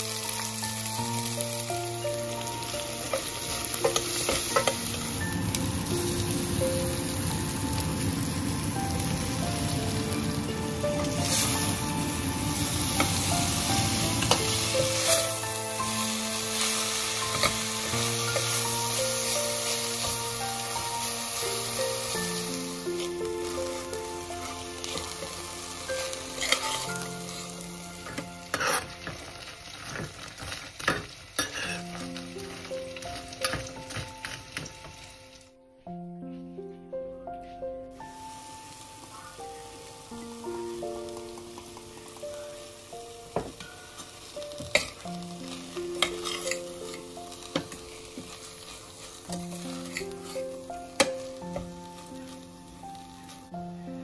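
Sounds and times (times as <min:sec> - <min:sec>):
leaves sizzling in oil: 0:00.0 - 0:35.6, 0:37.9 - 0:54.0
background music: 0:00.0 - 0:54.0
metal spoon scraping a pan: 0:16.6 - 0:18.6, 0:26.0 - 0:27.1, 0:28.0 - 0:32.2, 0:46.0 - 0:50.5.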